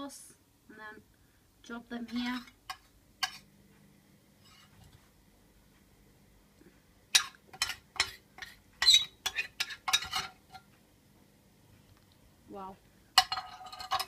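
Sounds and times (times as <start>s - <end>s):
metal spoon scraping a dish: 2.0s - 3.5s, 4.4s - 5.0s, 7.2s - 10.7s, 13.2s - 14.0s.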